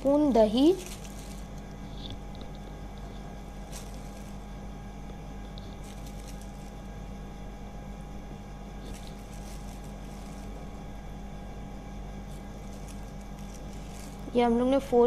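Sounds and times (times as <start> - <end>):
low machine hum: 0.0 - 15.0
faint clicks and scrapes: 0.8 - 4.4.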